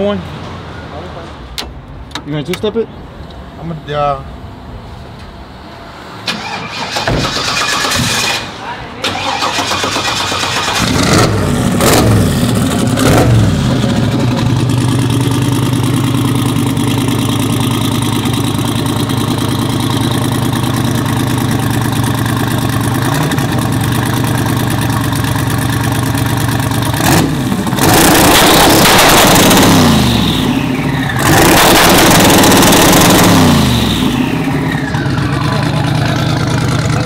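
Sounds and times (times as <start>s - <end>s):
pickup engine revving and idling: 9.9s - 37.0s.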